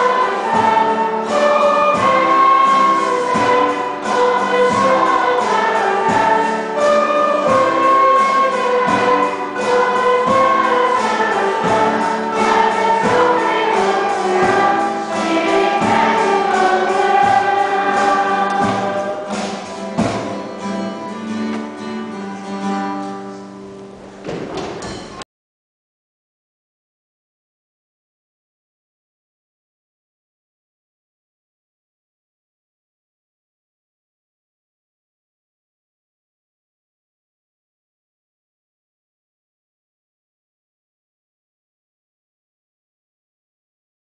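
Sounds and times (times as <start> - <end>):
children's choir singing: 0.0 - 21.0
small band with drums and keyboard: 0.0 - 23.5.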